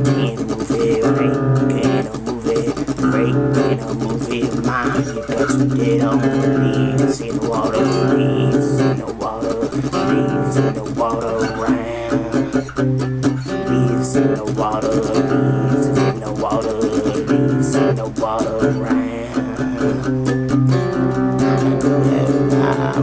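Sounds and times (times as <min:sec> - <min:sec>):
acoustic guitar strumming: 0:00.0 - 0:23.0.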